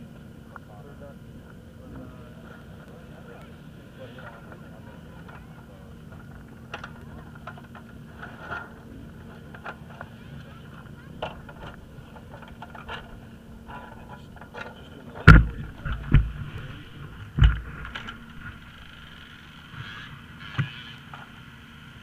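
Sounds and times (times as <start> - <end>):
faint voices: 0.0 - 20.2
low steady hum: 0.0 - 22.0
heavy thumps: 15.2 - 18.7
gear knocking and scraping: 15.2 - 20.9.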